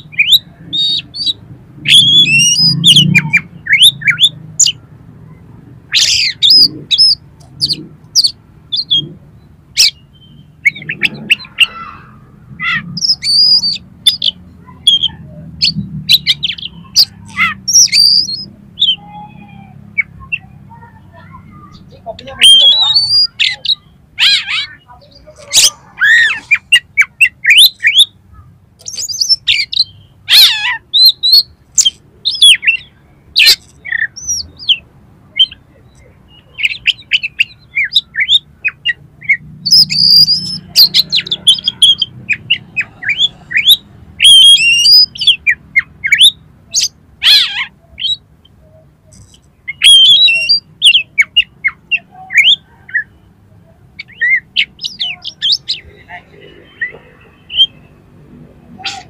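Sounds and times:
bird singing high whistles: 43.2 - 45.4, 49.7 - 51.5.

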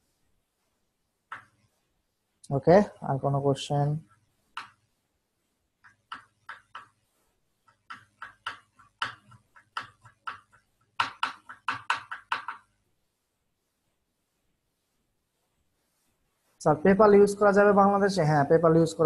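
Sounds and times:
keyboard typing: 5.8 - 7.0, 7.6 - 12.7.

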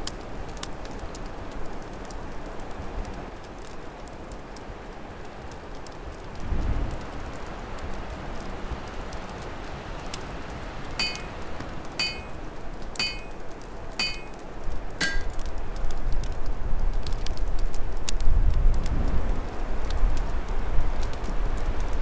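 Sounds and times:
open fire crackling: 0.0 - 22.0
ringing metallic clinks: 11.0 - 11.4, 12.0 - 12.4, 13.0 - 13.4, 14.0 - 14.4, 15.0 - 15.4.

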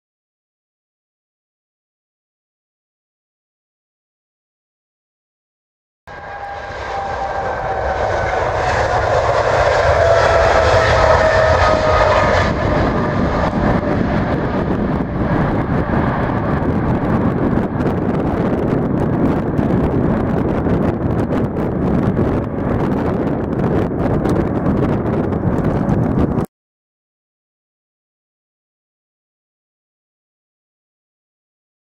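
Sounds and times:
jet engine rumble: 6.1 - 26.5
jet engine whine: 6.1 - 26.5.

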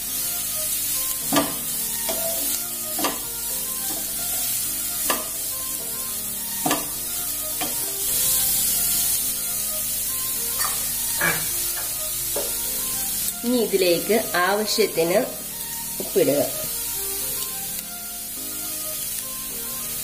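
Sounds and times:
vegetables sizzling in hot oil: 0.0 - 20.0
spatula knocking against pan: 1.2 - 3.3, 5.0 - 5.4, 6.6 - 7.0, 7.6 - 7.9, 10.6 - 12.6.

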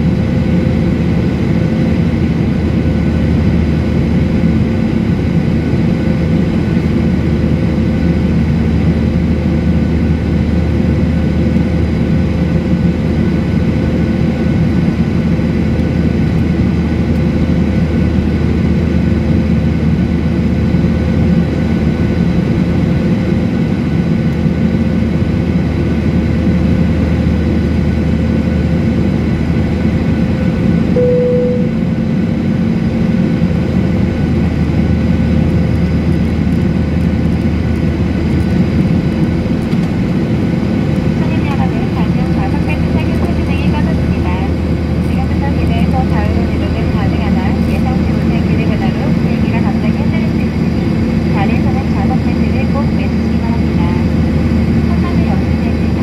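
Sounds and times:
jet cabin engine drone: 0.0 - 56.0
short single tone: 31.0 - 32.0.

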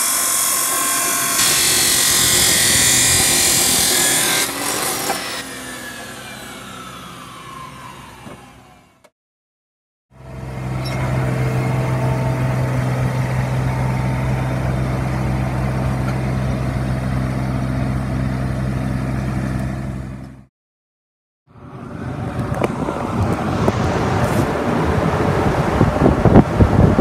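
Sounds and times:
mower engine humming: 10.2 - 20.5
rushing noise: 21.5 - 27.0.

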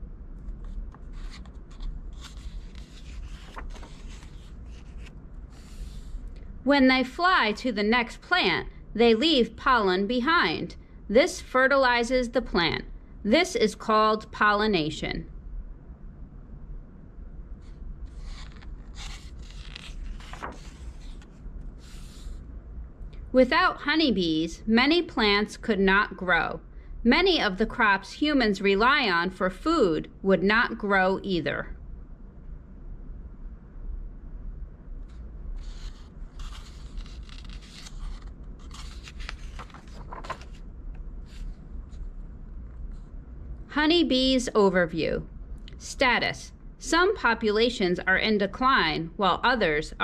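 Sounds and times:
book page turning: 0.4 - 6.2, 18.1 - 22.4, 35.0 - 43.1.

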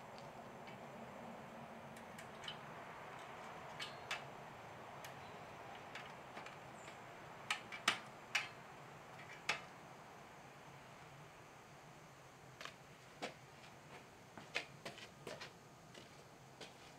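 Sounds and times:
sheet metal clicking and snapping: 2.0 - 4.4, 5.0 - 9.7.

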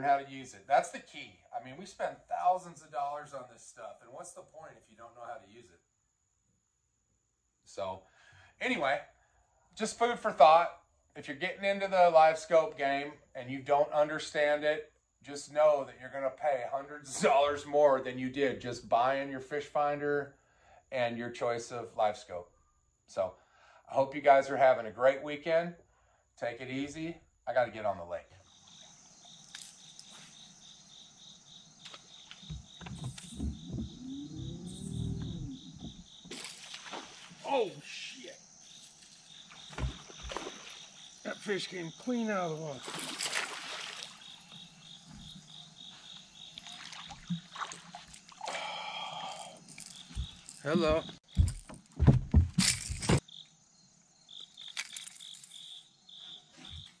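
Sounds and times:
insects chirping: 0.0 - 14.5, 15.1 - 57.0
high insect buzz: 28.4 - 57.0
low uneven rumbles: 32.5 - 36.2
rising and falling hum: 33.4 - 36.0
heavy thumps: 50.0 - 53.2.

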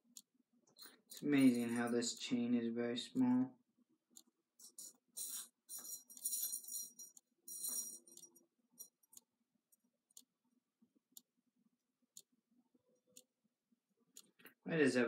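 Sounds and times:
metal chain jingling: 0.8 - 1.9, 4.6 - 8.9.

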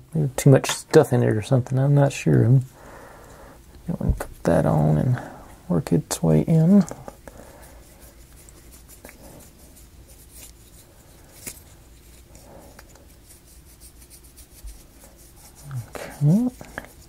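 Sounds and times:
paintbrush rubbing on wood: 7.5 - 17.0.

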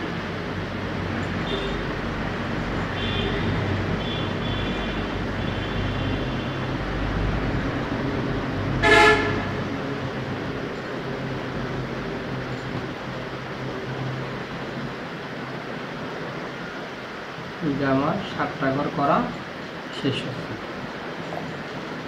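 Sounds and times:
background traffic rumble: 0.0 - 22.0
vehicle horn toot: 1.4 - 1.8, 3.0 - 6.6, 8.8 - 9.6.

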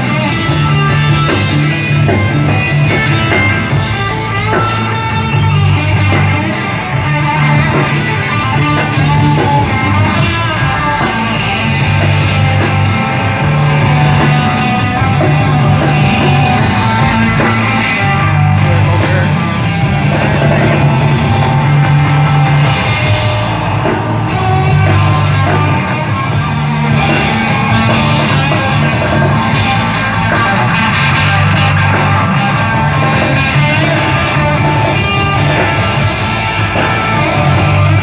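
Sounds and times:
electric guitar: 0.0 - 38.0
live rock band playing: 0.0 - 38.0
pulsing bass line: 0.0 - 38.0.

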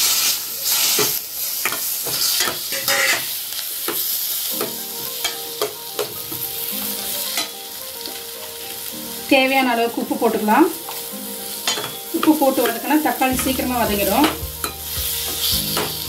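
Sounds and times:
vegetables sizzling in hot oil: 0.0 - 16.0
spatula scraping and knocking pan: 11.7 - 16.0.

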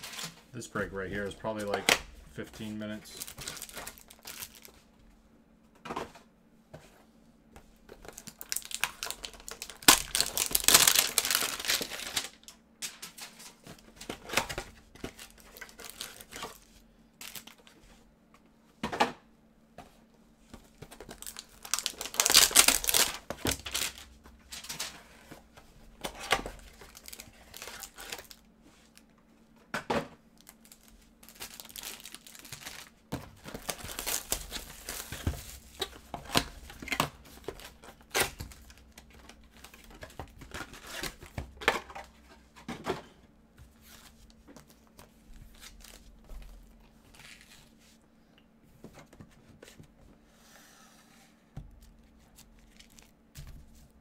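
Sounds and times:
packaging crinkling: 3.0 - 4.8, 8.0 - 12.5, 14.1 - 17.7, 20.9 - 24.1, 26.1 - 28.5, 30.4 - 41.3, 52.4 - 53.2.

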